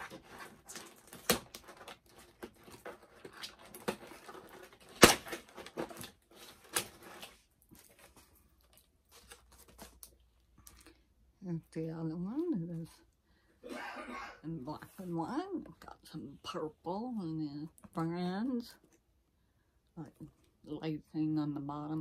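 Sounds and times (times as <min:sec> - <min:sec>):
packaging rustling and clicking: 0:00.0 - 0:11.0.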